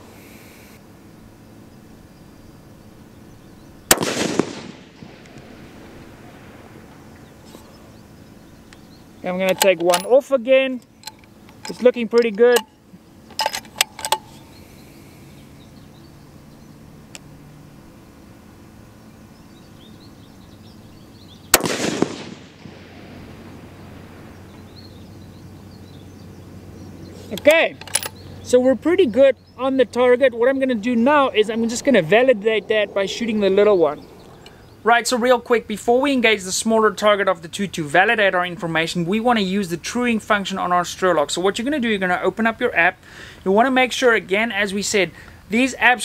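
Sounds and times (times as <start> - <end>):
rifle shot: 3.9 - 6.9, 21.5 - 24.4
sharp crack: 3.9 - 7.7, 21.5 - 24.6
rolling echo: 3.9 - 9.0, 21.5 - 26.9.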